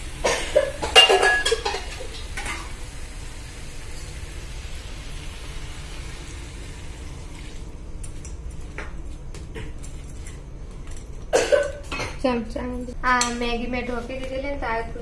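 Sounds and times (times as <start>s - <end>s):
water sizzling in hot pan: 0.0s - 7.8s.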